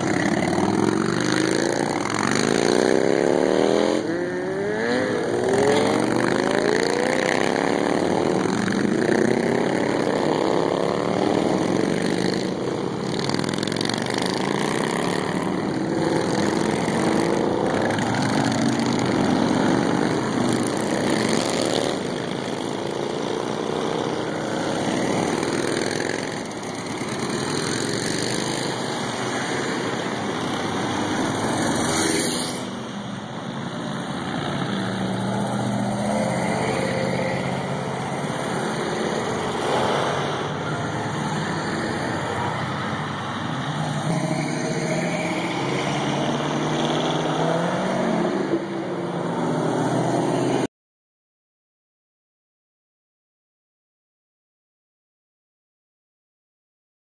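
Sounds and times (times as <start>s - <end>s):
motorcycles accelerating past: 0.0s - 50.7s.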